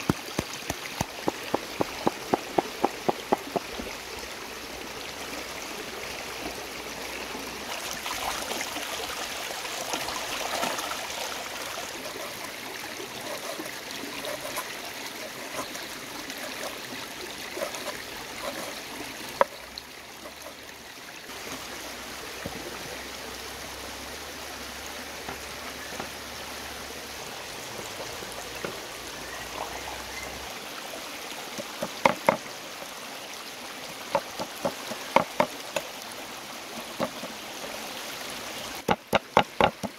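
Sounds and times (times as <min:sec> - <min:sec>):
cleaver chopping on wooden board: 0:00.0 - 0:03.7, 0:38.9 - 0:39.9
stream trickling and babbling: 0:00.0 - 0:39.9.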